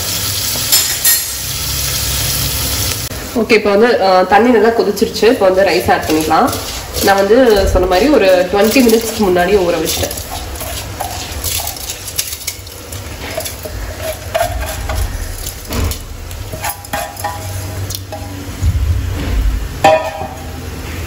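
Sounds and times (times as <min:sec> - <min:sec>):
metal spoon scraping a pot: 0:05.5 - 0:18.4.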